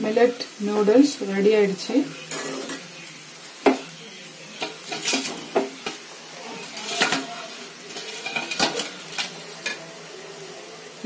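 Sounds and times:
metal spatula scraping a pan: 2.1s - 3.0s, 4.5s - 9.8s.

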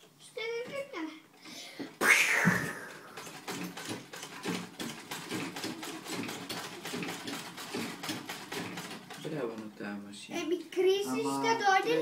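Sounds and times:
sewing machine clattering: 3.0s - 10.1s.

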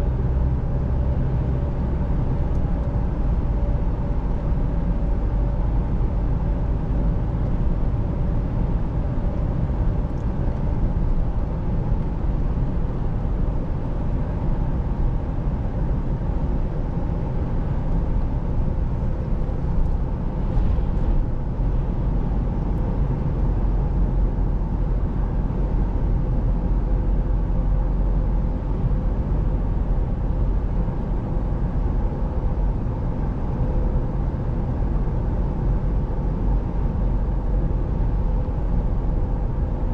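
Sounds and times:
engine hum: 0.0s - 39.9s
tyre and road noise: 18.8s - 23.9s.

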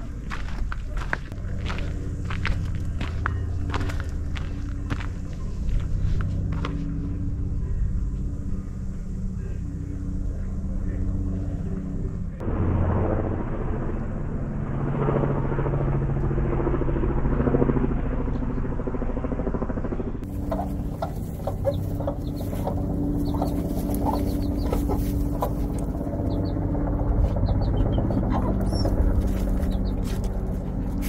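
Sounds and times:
low rumble: 0.0s - 16.3s, 19.6s - 31.0s
chicks peeping: 20.2s - 31.0s
hen clucking: 20.2s - 31.0s.

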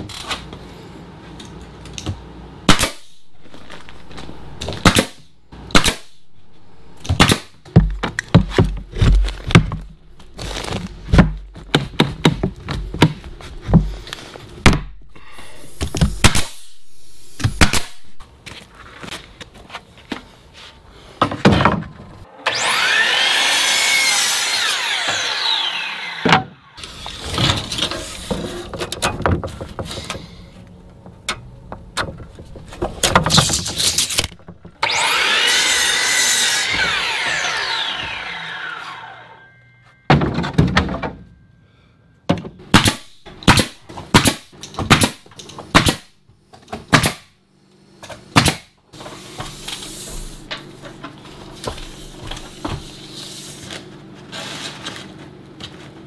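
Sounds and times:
miter saw cutting wood: 22.3s - 27.4s, 33.6s - 39.6s
saw blade whining down: 22.3s - 27.4s, 33.8s - 39.8s.

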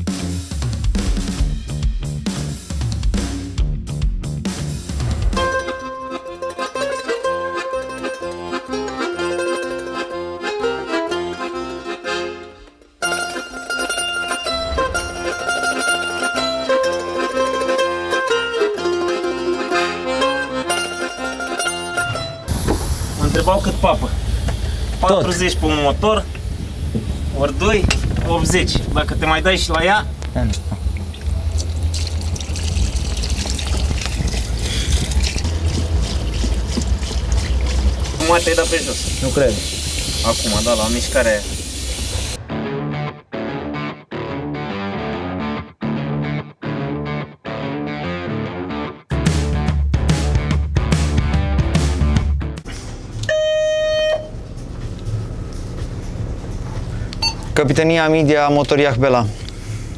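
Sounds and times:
plucked strings over a beat: 4.2s - 22.5s
low rumble: 22.5s - 38.2s
water splashing and trickling: 30.4s - 42.4s.

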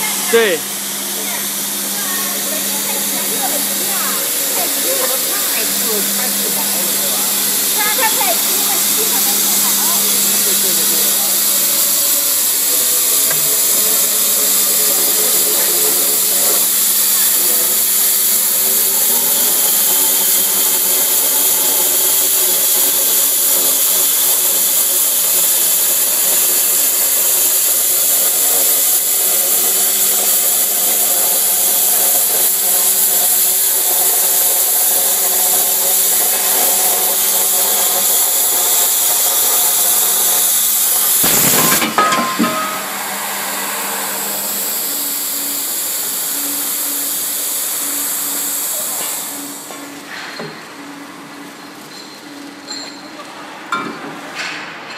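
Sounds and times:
machine hum: 0.0s - 17.8s, 39.2s - 48.5s
cutting torch hissing: 0.0s - 50.0s.

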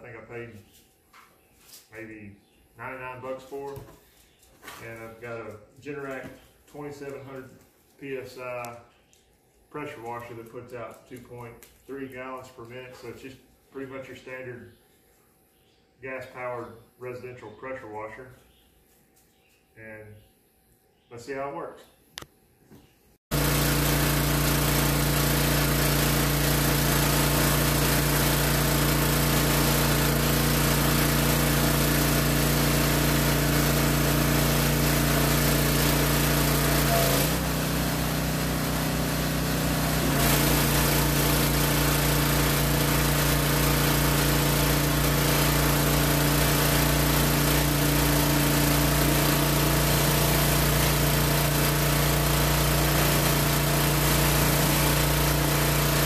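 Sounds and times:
pressure washer engine running: 23.3s - 56.0s.

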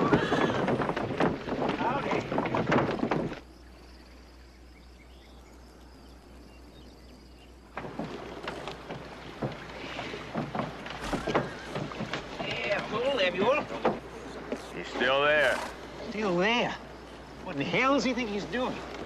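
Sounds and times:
horse hoofbeats: 0.0s - 3.7s, 7.7s - 17.0s.

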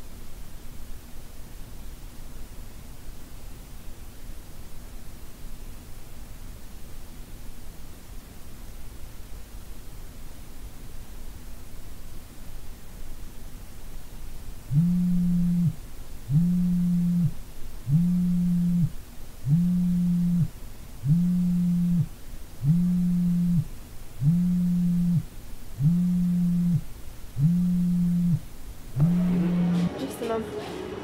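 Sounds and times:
phone vibrating buzz: 14.7s - 29.9s.

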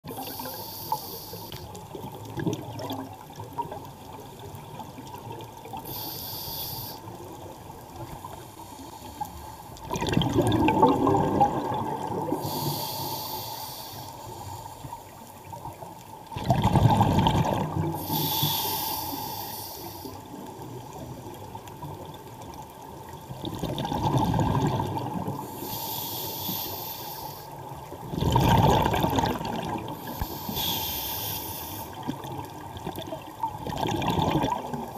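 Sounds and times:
diver breathing through regulator: 0.1s - 1.7s, 5.8s - 7.1s, 12.3s - 14.8s, 17.9s - 20.2s, 25.4s - 27.5s, 30.0s - 32.0s
exhaled bubbles gushing: 1.9s - 4.0s, 9.8s - 12.6s, 16.3s - 18.1s, 23.2s - 25.5s, 28.0s - 30.1s, 32.0s - 34.9s.

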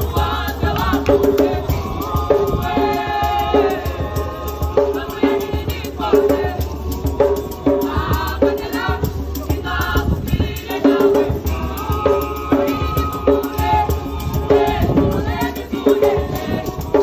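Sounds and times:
group singing in harmony: 0.0s - 17.0s
percussive beat: 0.0s - 17.0s
shaker rattling: 0.0s - 17.0s.

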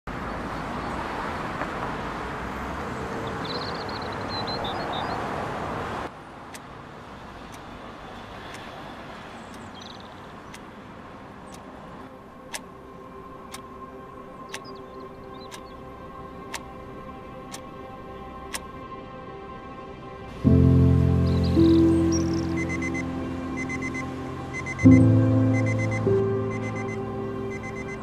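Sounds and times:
street traffic noise: 0.0s - 28.0s
high chirps: 20.8s - 28.0s.

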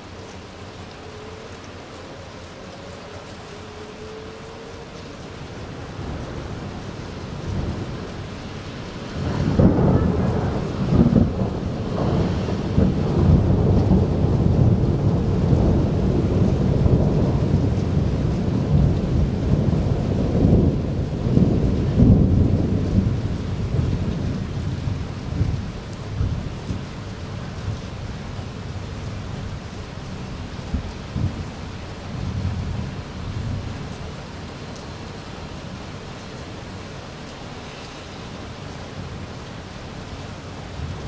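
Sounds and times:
rain falling: 0.0s - 41.0s
thunder rumbling and cracking: 5.6s - 35.0s.

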